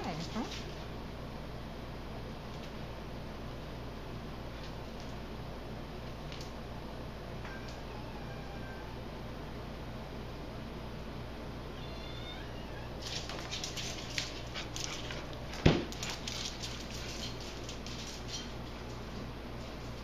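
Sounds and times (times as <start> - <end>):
dog claws clicking on tile floor: 6.1 - 6.6, 13.0 - 20.0.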